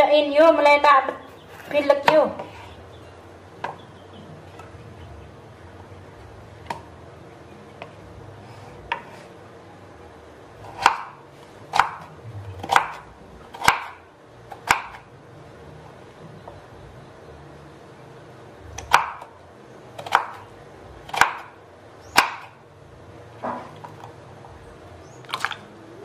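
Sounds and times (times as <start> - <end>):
knife chopping on wooden board: 8.9 - 9.2, 10.7 - 14.0, 14.6 - 15.0, 18.8 - 19.3, 20.0 - 20.4, 21.1 - 21.5, 22.2 - 22.5.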